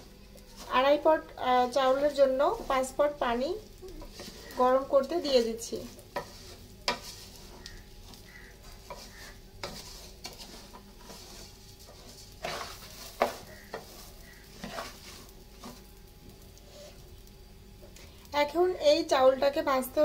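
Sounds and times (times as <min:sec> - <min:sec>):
faint sizzle: 0:00.0 - 0:20.0
spatula scraping rice in pot: 0:00.4 - 0:17.1.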